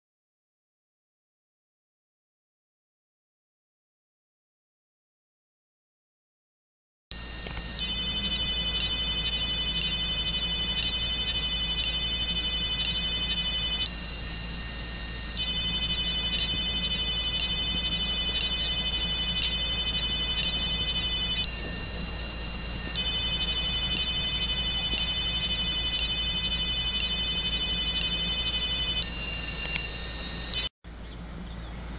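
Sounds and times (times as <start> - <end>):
timer speaker beeping: 7.1 - 30.7
steady high-pitched whine: 7.1 - 31.9.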